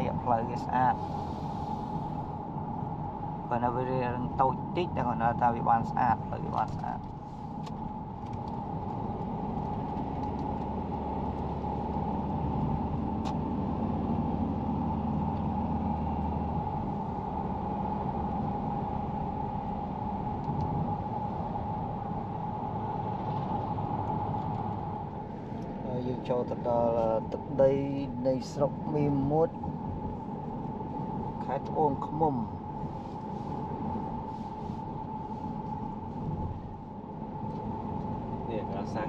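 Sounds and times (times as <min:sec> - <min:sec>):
vehicle road and engine noise: 0:00.0 - 0:39.0.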